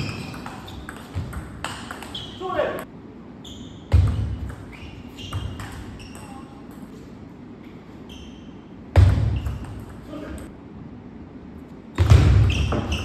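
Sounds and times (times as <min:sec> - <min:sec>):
shoes squeaking on floor: 0:00.0 - 0:02.6, 0:03.4 - 0:06.6, 0:07.9 - 0:09.8, 0:12.2 - 0:13.0.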